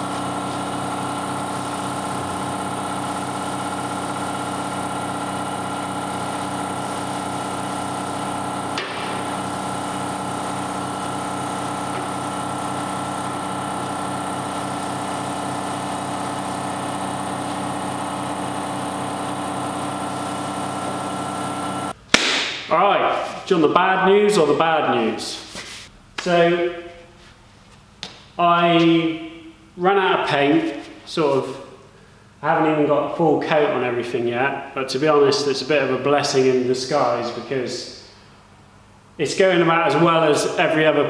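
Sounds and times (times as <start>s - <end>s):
air compressor running: 0.0s - 23.5s, 38.0s - 39.2s
sharp knock: 22.1s - 22.6s.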